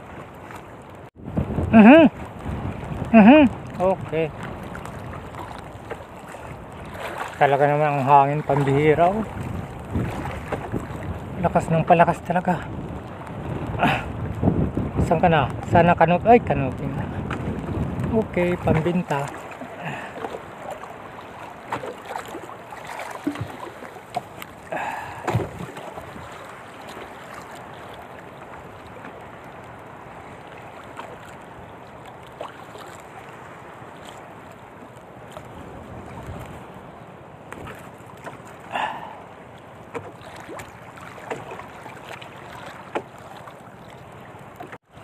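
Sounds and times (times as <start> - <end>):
waves slapping against canoe: 0.0 - 45.0
strong wind: 1.0 - 27.4, 35.3 - 37.8
knocks in boat: 8.4 - 11.1, 21.7 - 24.4, 25.1 - 26.3, 39.9 - 43.5.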